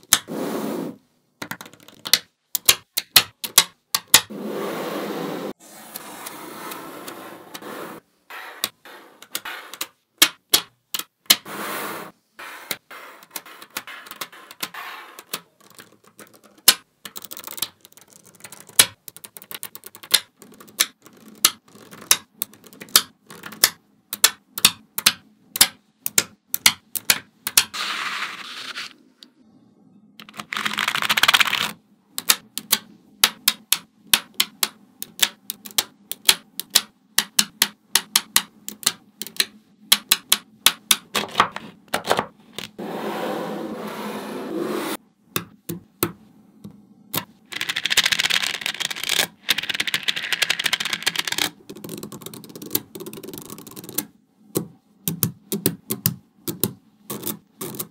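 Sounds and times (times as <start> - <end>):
magnetic balls clicking: 1.4 - 4.3, 8.4 - 11.5, 12.6 - 27.8, 30.2 - 41.2, 45.3 - 57.9
magnetic balls rubbing: 4.0 - 10.1, 11.3 - 18.9.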